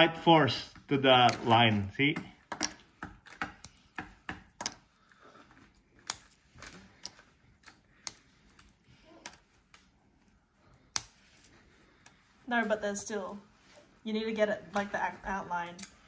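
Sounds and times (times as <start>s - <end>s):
sugar candy cracking: 1.0s - 10.0s.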